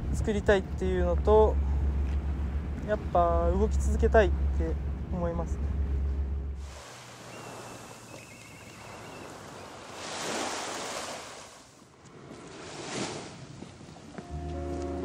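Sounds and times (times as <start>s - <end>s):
sea waves on rocky shore: 6.6s - 14.0s.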